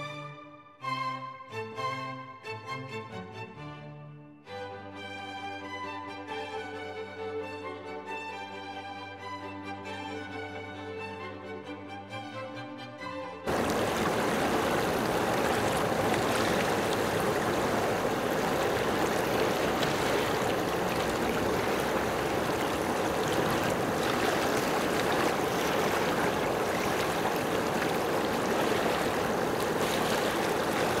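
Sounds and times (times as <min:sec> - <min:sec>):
choppy water waves lapping: 0:13.5 - 0:31.0.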